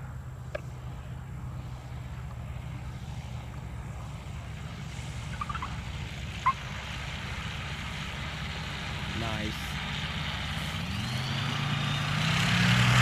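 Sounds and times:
light aircraft engine drone: 0.0 - 13.0
sharp chirp: 5.3 - 5.8.

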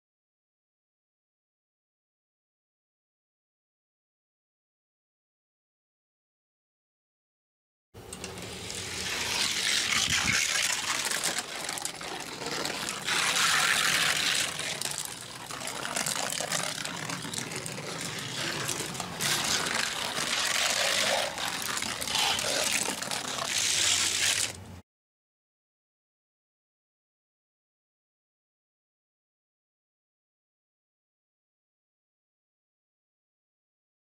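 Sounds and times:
toy car rolling on plastic track: 8.1 - 24.6.

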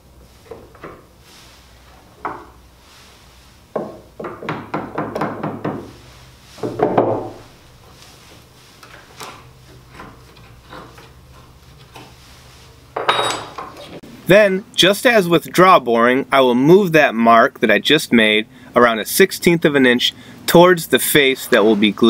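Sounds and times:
wooden blocks knocking: 3.8 - 5.9, 6.6 - 7.4.

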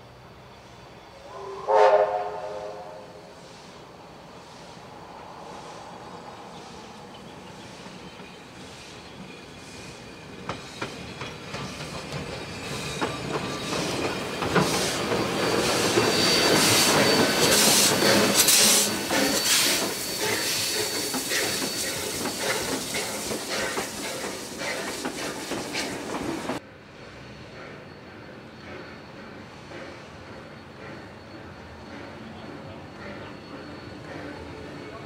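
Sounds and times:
steam train passing: 0.0 - 35.0
steam hissing: 1.2 - 35.0.

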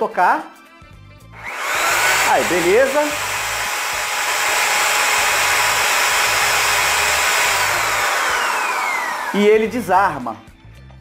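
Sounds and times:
electric drill whining: 1.4 - 9.7.

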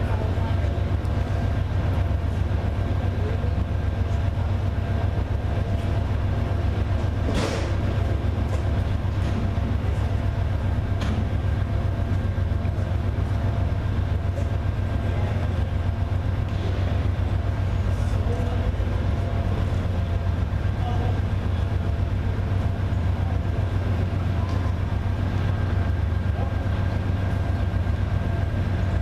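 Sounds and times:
diesel locomotive idling: 0.0 - 29.0.

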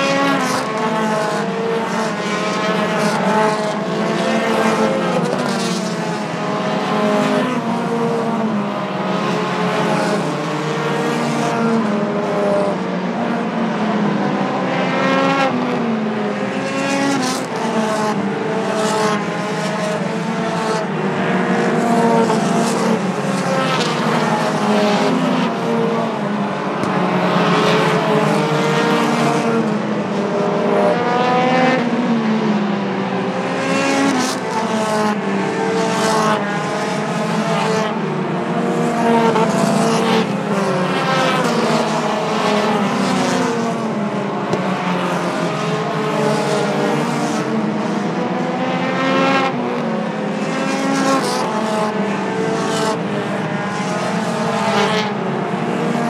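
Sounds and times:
race car engines passing: 0.0 - 56.0.

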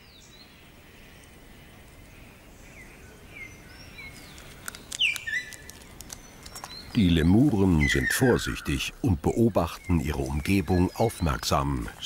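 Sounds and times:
small birds chirping: 0.0 - 12.0
sharp clicks: 4.3 - 6.9.

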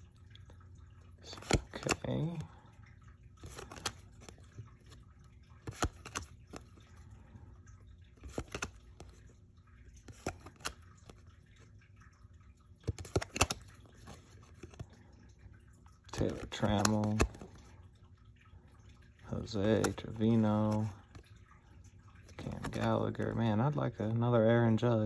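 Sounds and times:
trading cards flipped by hand: 1.4 - 2.1, 3.4 - 5.0, 5.6 - 6.8, 8.2 - 9.1, 10.0 - 10.8, 12.8 - 14.8, 16.2 - 17.5.

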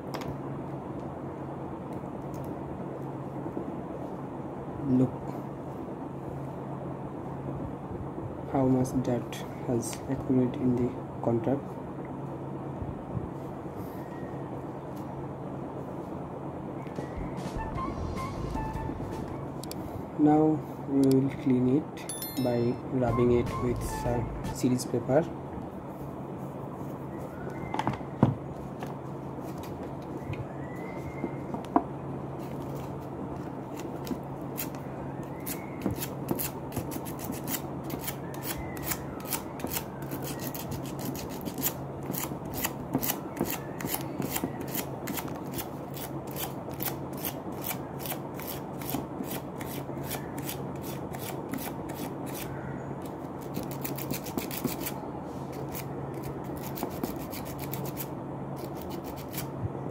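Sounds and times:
steady low hum: 0.0 - 59.9
sandpaper scratching metal contact: 53.4 - 59.5.

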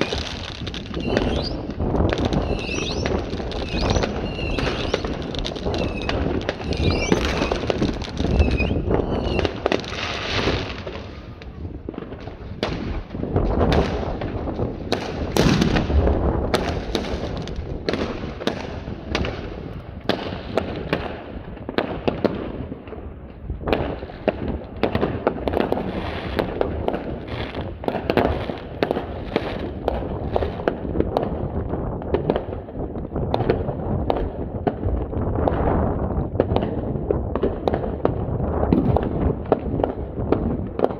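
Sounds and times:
firework whistles: 0.0 - 11.4
fireworks crackling and banging: 0.0 - 40.9.

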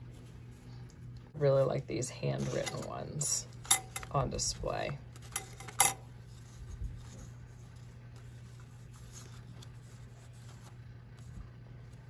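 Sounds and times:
steady low hum: 0.0 - 12.0
paper cards rustling: 2.4 - 3.0, 5.0 - 12.0.

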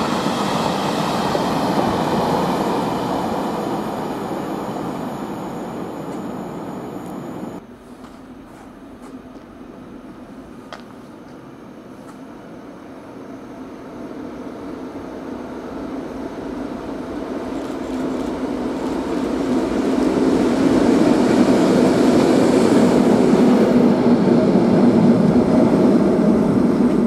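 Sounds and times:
diesel locomotive engine drone: 0.0 - 27.0
wheels rumbling on rails: 15.4 - 27.0.

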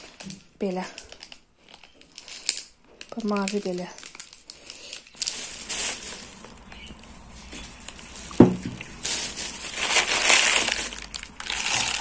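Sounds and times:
plastic bag rustling: 0.0 - 12.0
sharp thump: 8.4 - 8.8.

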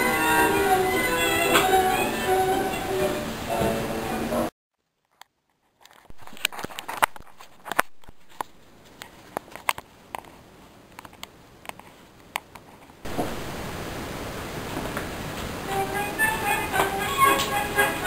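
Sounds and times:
music: 0.0 - 4.5, 15.6 - 18.0.

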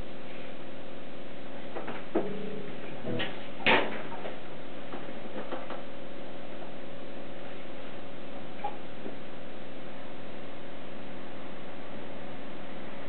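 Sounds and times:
loud ringing struck hit: 2.2 - 3.5.

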